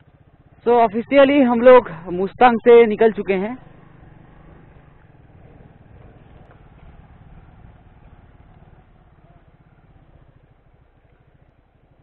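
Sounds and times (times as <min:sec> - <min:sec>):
motorcycle engine at low revs: 0:00.0 - 0:12.0.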